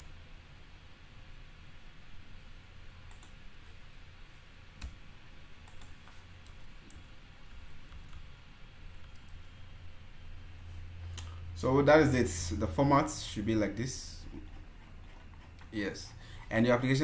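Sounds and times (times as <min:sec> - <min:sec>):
low steady hum: 0:00.0 - 0:17.0
computer mouse and keyboard clicks: 0:05.6 - 0:07.1, 0:08.9 - 0:09.5.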